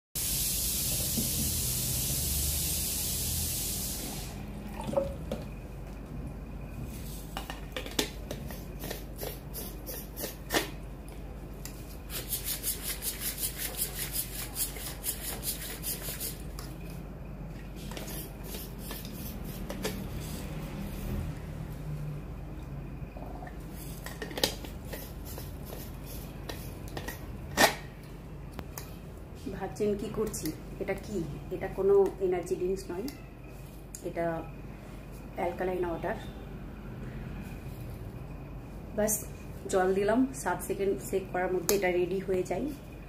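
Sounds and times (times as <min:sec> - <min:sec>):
hiss: 0:00.2 - 0:04.5.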